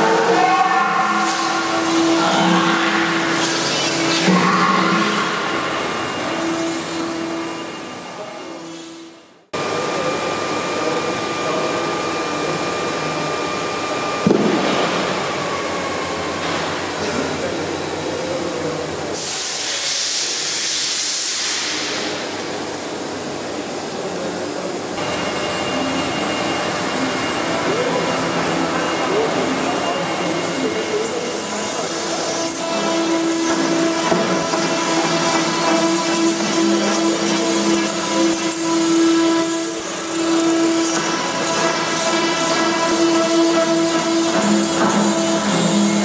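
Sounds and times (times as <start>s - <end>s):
steady machine noise: 0.0s - 19.6s, 21.6s - 46.0s
drilling machine motor whir: 0.9s - 8.0s, 25.0s - 46.0s.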